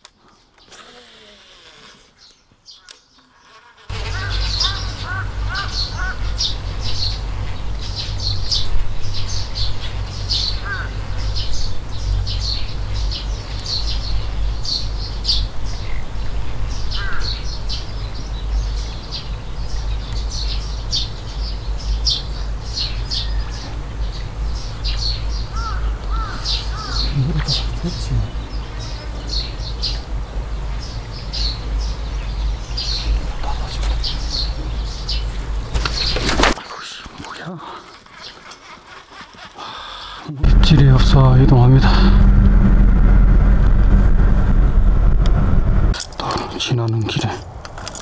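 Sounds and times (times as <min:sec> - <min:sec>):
small birds chirping: 0:00.0 - 0:41.8
lower curved bird call: 0:00.6 - 0:15.9, 0:16.8 - 0:30.1
steady low rumble: 0:03.9 - 0:35.7, 0:40.4 - 0:46.0.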